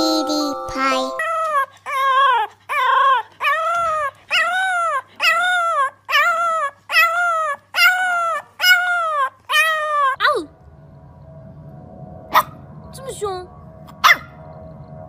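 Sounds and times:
puppy howling: 1.2s - 10.2s.

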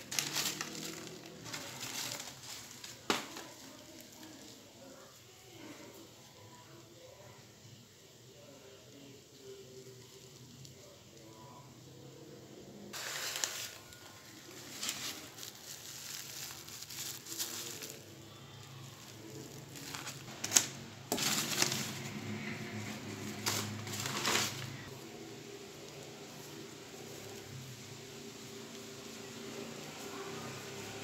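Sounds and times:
plastic wrapping crinkling: 0.0s - 4.9s, 13.0s - 25.0s.

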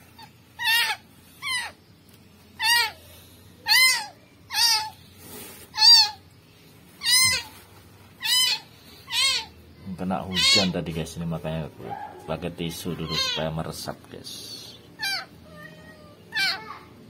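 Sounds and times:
kitten mewing: 10.3s - 10.8s, 12.9s - 13.6s.

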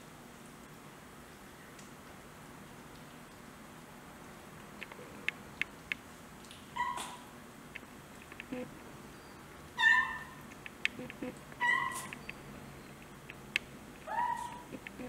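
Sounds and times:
kitten meowing: 9.8s - 10.4s, 11.1s - 12.2s, 14.0s - 14.7s
kitten lapping milk: 10.4s - 15.0s.

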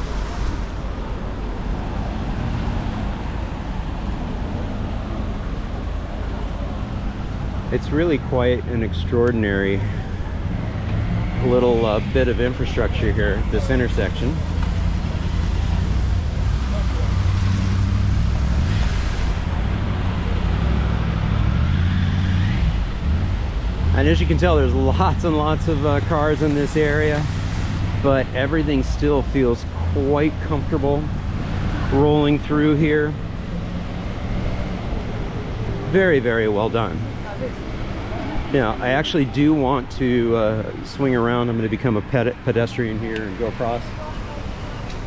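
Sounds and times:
road traffic rumble: 0.0s - 45.0s
car passing hiss: 16.6s - 22.7s.

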